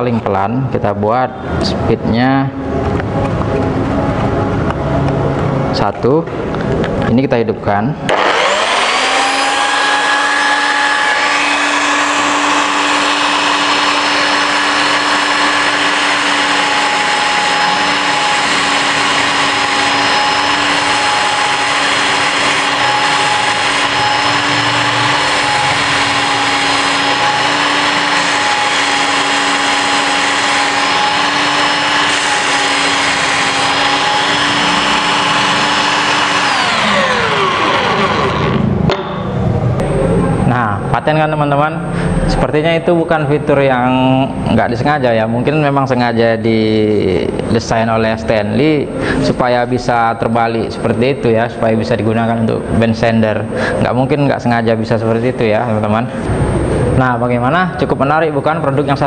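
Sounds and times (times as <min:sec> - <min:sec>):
belt sander motor whine: 0:08.1 - 0:39.0.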